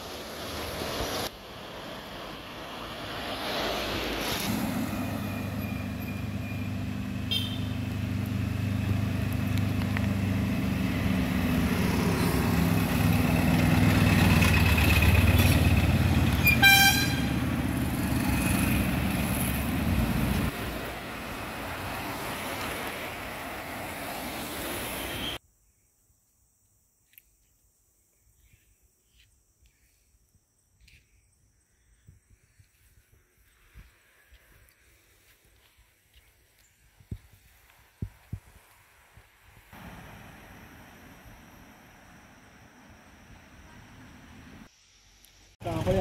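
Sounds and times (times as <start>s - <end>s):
heavy vehicle engine passing: 0.0s - 25.3s, 39.8s - 44.7s
short horn toot: 7.3s - 7.8s, 16.3s - 17.4s.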